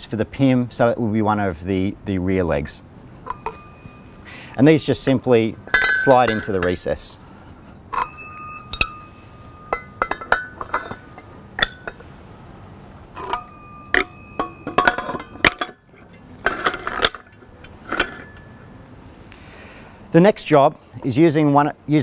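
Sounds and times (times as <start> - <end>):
metal tripod legs clinking: 3.2 - 7.1, 7.9 - 12.2, 13.1 - 19.0.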